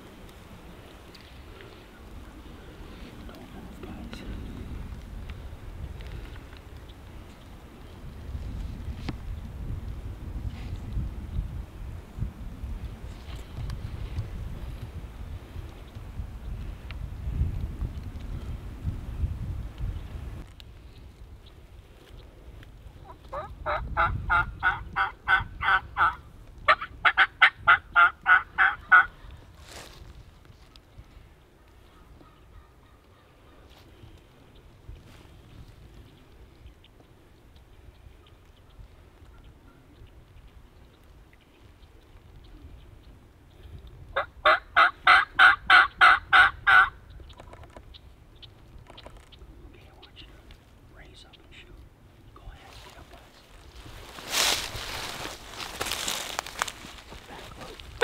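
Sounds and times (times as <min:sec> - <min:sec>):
turkey yelping: 0:23.2 - 0:29.2, 0:44.2 - 0:46.9.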